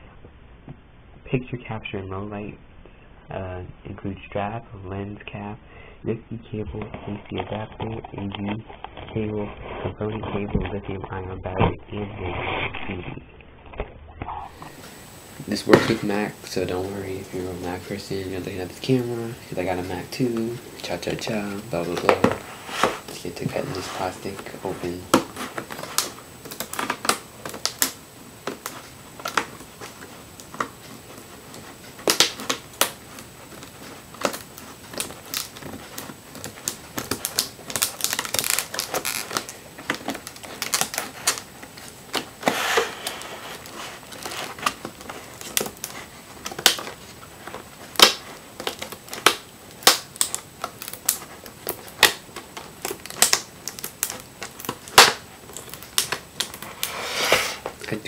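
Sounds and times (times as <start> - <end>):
plastic crackling: 13.7 - 58.0
hard plastic being cut: 14.4 - 57.8.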